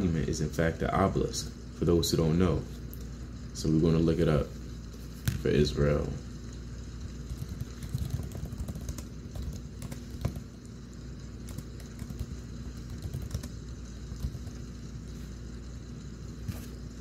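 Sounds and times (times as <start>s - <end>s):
low steady hum: 0.0s - 17.0s
keyboard typing clicks: 11.5s - 13.6s.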